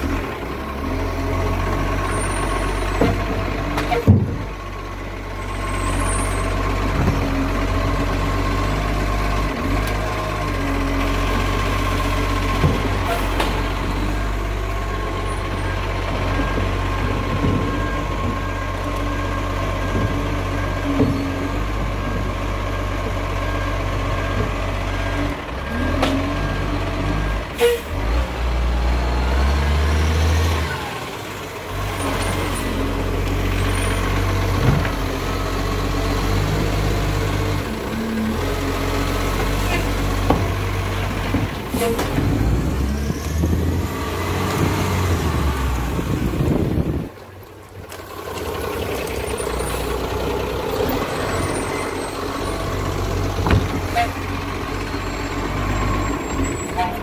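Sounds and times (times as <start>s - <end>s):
diesel truck engine running: 0.0s - 57.0s
air brake hissing: 27.6s - 27.9s.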